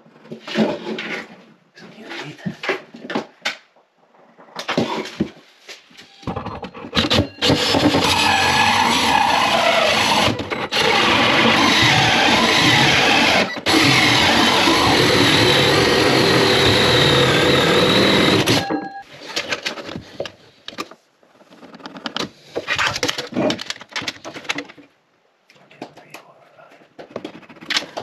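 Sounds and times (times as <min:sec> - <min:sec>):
cordless drill cutting wood: 0:07.0 - 0:18.8.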